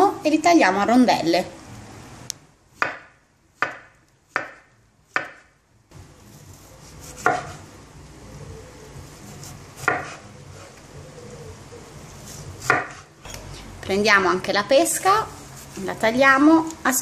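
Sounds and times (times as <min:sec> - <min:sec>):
knife slicing fruit: 0:06.3 - 0:07.7, 0:09.0 - 0:10.8, 0:12.2 - 0:13.6.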